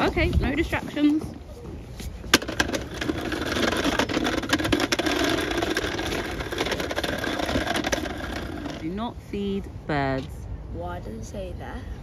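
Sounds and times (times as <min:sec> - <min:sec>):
plastic wheels rattling on path: 0:01.9 - 0:09.0.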